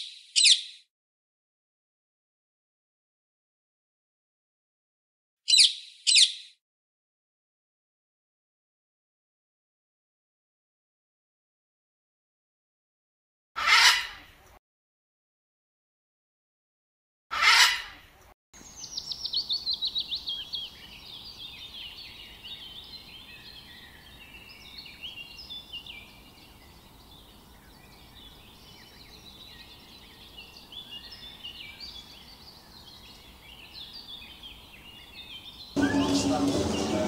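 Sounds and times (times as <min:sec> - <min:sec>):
birds chirping and whistling: 0:00.0 - 0:00.8, 0:05.5 - 0:06.6, 0:27.7 - 0:37.0
harsh bird squawk: 0:00.0 - 0:00.8, 0:05.5 - 0:06.5, 0:13.6 - 0:14.3, 0:17.3 - 0:18.0.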